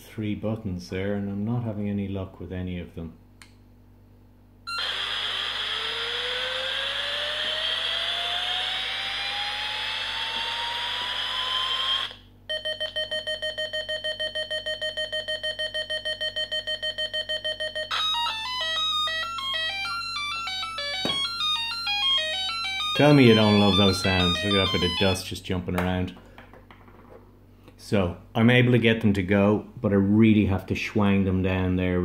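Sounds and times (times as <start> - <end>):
electronic hissing rush with whines: 4.7 - 12.2
electronic tune: 4.7 - 13.1, 15.6 - 25.2
fast pulsing beeps: 4.7 - 25.2.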